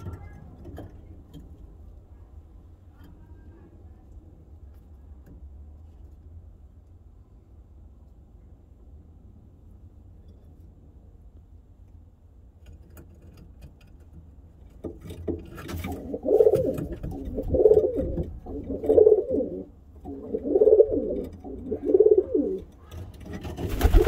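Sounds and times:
pigeon cooing: 15.9 - 23.0.

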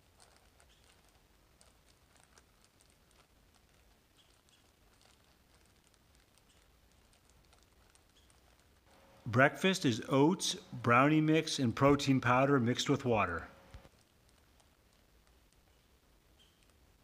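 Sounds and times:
food bag crinkling: 0.0 - 8.8.

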